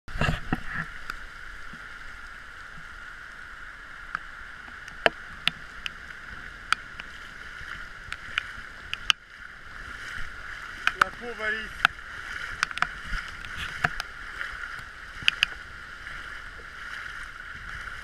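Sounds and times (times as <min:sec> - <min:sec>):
running floodwater: 0:00.1 - 0:18.0
sharp ticks: 0:08.1 - 0:09.2, 0:15.2 - 0:15.6.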